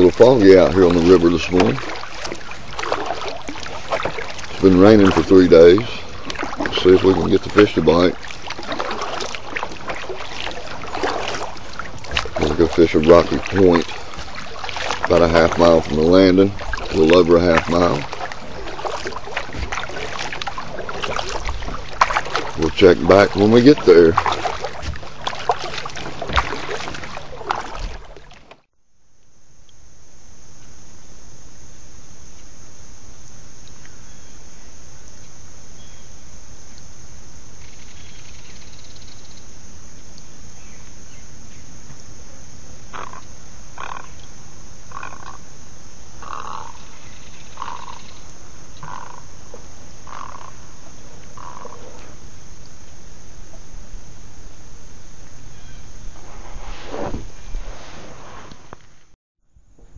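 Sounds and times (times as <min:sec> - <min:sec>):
steady outdoor hiss: 0:00.0 - 0:59.9
short animal calls: 0:42.9 - 0:44.2, 0:44.9 - 0:45.5, 0:46.2 - 0:46.9, 0:47.5 - 0:48.2, 0:48.8 - 0:49.4, 0:50.0 - 0:50.7, 0:51.3 - 0:52.2.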